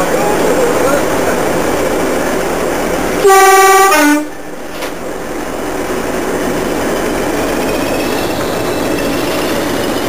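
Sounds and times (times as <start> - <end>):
locomotive two-tone horn: 3.2 - 4.3.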